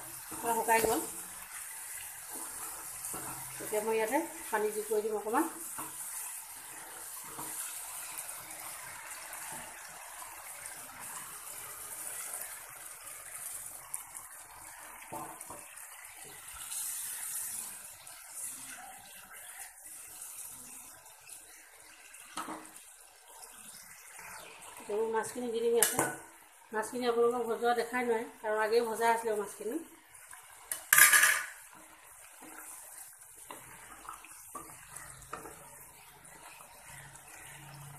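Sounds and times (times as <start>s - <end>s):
spatula stirring: 0.0s - 12.6s, 30.1s - 37.9s
sauce sizzling in a pan: 0.0s - 37.9s.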